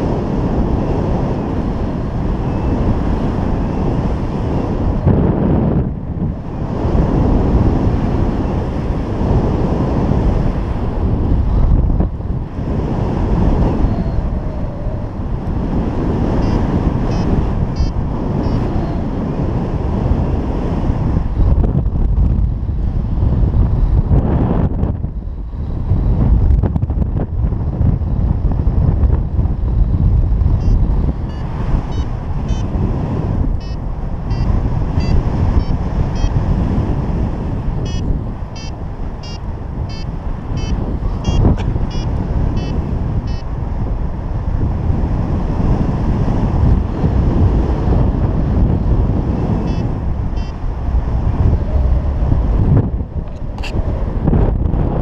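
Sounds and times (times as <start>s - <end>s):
wind buffeting microphone: 0.0s - 55.0s
variometer high beeps: 16.4s - 18.7s, 30.6s - 32.7s, 33.6s - 36.4s, 37.8s - 43.5s, 49.6s - 50.6s.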